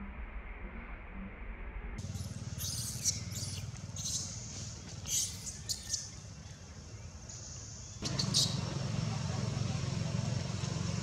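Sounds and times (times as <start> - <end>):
high-pitched animal squeaks: 2.2 - 4.4.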